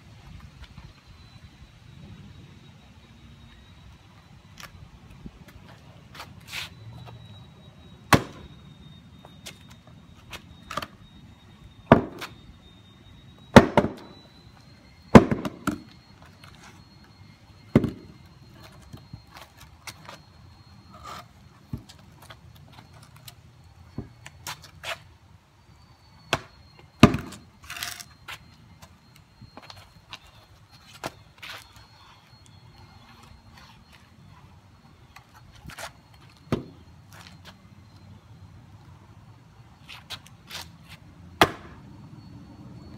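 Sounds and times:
hatchet chopping wood: 8.1 - 8.4, 26.3 - 27.4, 41.4 - 41.7.

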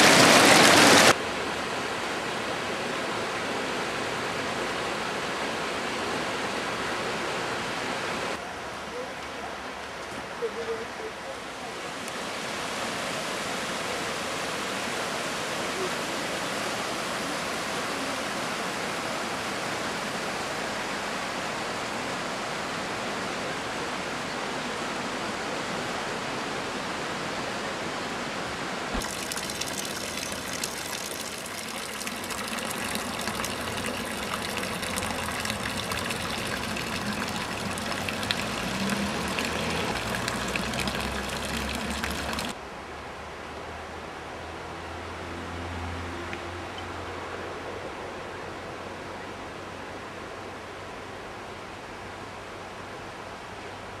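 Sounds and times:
river rushing over stones: 0.0 - 8.4, 28.5 - 42.6.

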